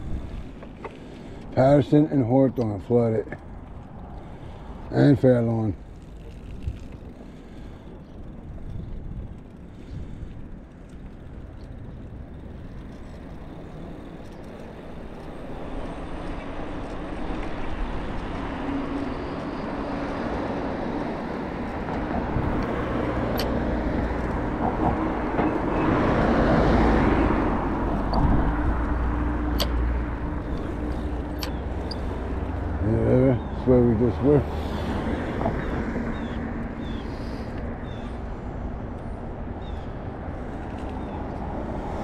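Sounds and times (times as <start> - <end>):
vehicle passing: 0.0 - 42.0
sharp ticks: 21.7 - 24.5, 27.9 - 32.8.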